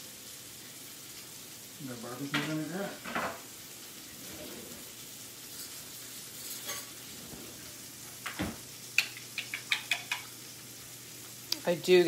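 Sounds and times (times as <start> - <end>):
steak sizzling in a pan: 0.0 - 12.0
spoon clicking on glass bowl: 9.0 - 10.3.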